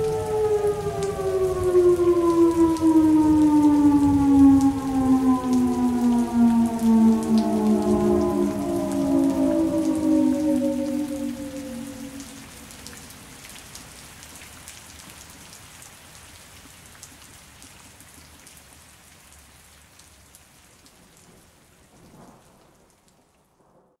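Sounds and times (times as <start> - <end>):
siren winding down: 0.0 - 13.4
steady rain: 0.0 - 23.9.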